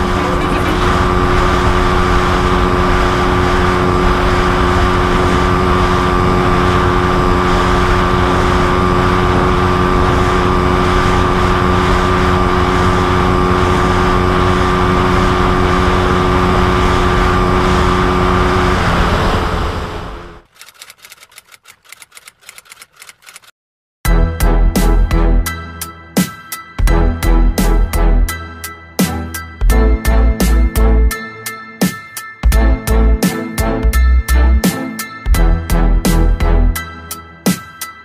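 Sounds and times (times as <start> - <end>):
wind rushing: 0.0 - 20.5
motorcycle engine at high speed: 0.0 - 23.5.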